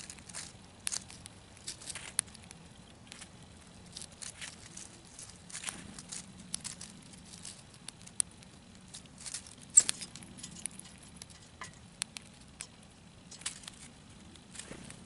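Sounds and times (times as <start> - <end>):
squirrel cracking seeds: 0.0 - 15.0.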